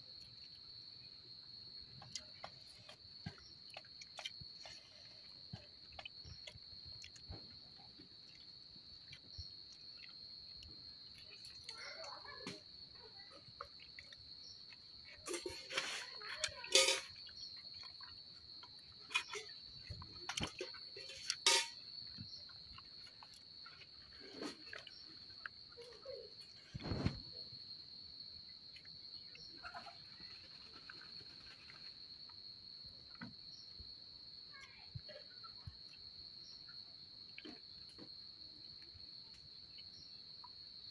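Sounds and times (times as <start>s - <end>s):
insects trilling: 0.0s - 40.9s
hands scooping rice on steel plates: 15.2s - 17.2s, 20.4s - 21.8s.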